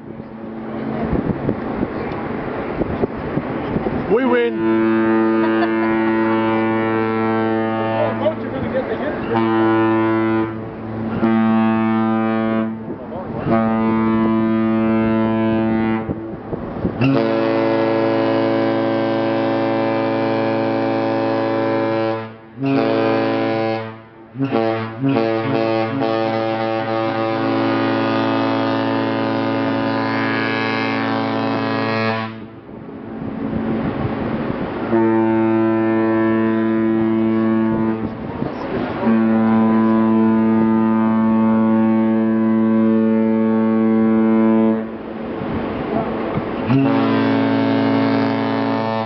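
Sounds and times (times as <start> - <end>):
ship horn blasts: 0.0 - 49.0.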